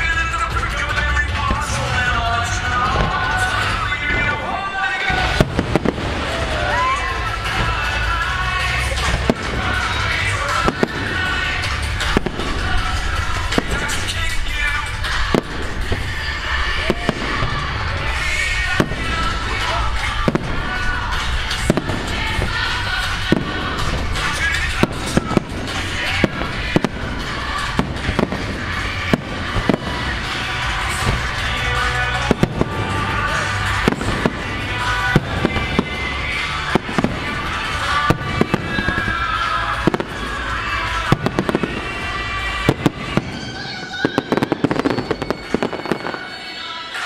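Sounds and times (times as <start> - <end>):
fireworks bursting: 0.0 - 47.0
music: 0.0 - 47.0
sharp firework pops: 5.2 - 6.5, 8.9 - 14.2, 18.8 - 31.6.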